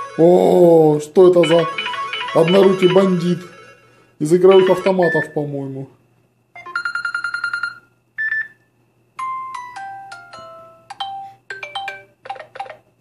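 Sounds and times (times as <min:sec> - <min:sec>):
fast repeated beeping tone: 0:01.4 - 0:03.6, 0:04.4 - 0:05.4.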